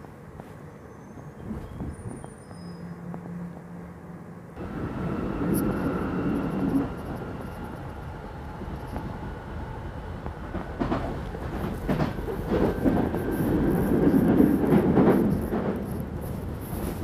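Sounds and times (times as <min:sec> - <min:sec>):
train wheels rumbling: 0:04.6 - 0:17.0
wheels clicking over rail joints: 0:10.3 - 0:17.0.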